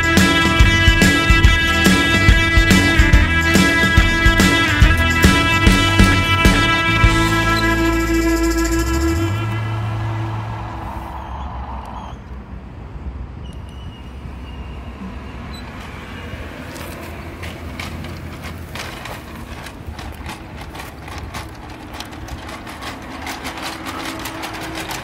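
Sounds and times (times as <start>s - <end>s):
toy electronic engine sound: 0.0s - 10.2s, 19.6s - 25.0s
rapid clicks: 16.7s - 25.0s.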